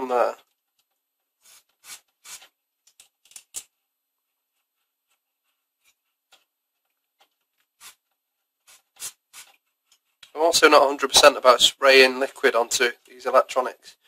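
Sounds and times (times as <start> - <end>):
aerosol spray bursts: 8.7 - 9.5.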